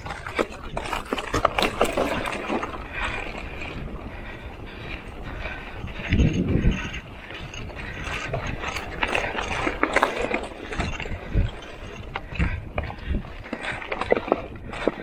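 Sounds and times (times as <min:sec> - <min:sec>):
bike clicking and rattling: 0:00.0 - 0:15.0.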